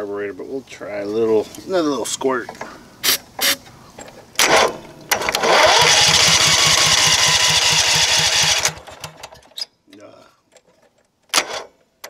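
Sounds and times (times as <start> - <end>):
engine cranking by electric starter: 4.4 - 9.6, 11.3 - 11.8.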